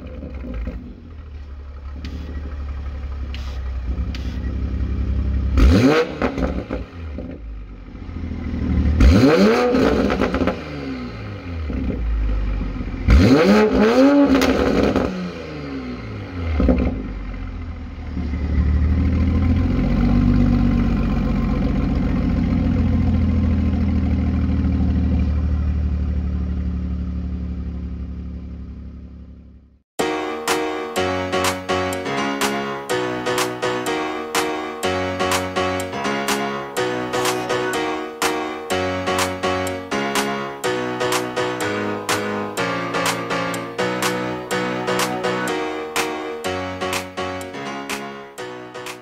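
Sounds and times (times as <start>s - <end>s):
car engine idling: 0.0s - 5.6s, 17.0s - 29.6s
car engine revving: 1.8s - 7.4s, 8.0s - 17.1s.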